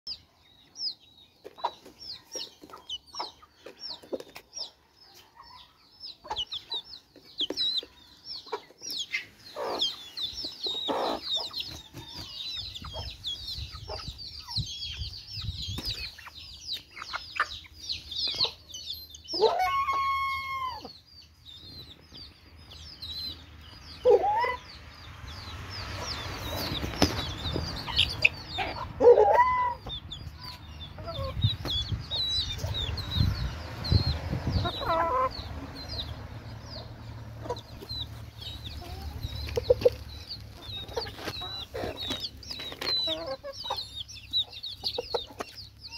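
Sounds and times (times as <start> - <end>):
chicks peeping: 0.1 - 45.9
hens clucking: 5.5 - 15.1, 15.7 - 21.0, 23.9 - 24.8, 25.9 - 45.9
drawn-out chicken call: 19.3 - 21.0, 24.0 - 24.8, 27.8 - 31.5, 34.5 - 35.9, 37.4 - 45.9.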